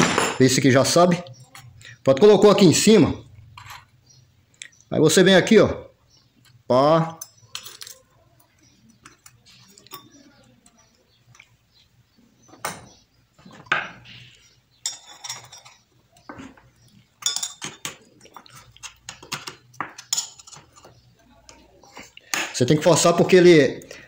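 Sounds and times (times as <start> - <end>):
small metal parts clicking: 7.2 - 8.1.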